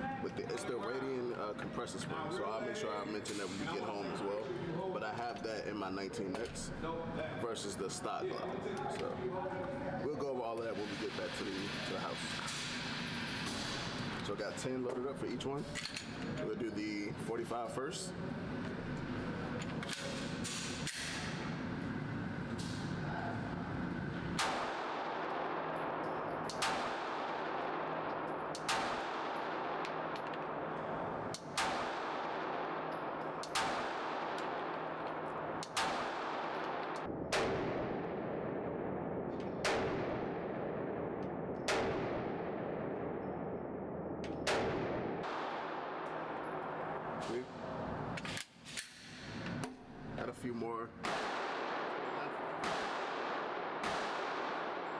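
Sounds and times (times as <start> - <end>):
pistol shots echoing indoors: 19.8 - 21.5, 24.3 - 47.3, 51.0 - 54.9.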